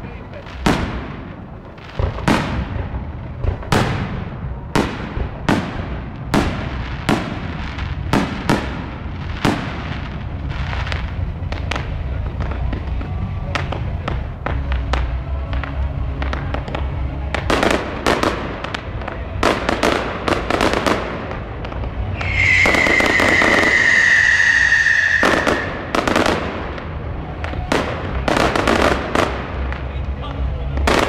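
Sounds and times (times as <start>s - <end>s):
firework shell bursts: 22.1s - 26.5s
high falling whistle: 22.2s - 25.9s.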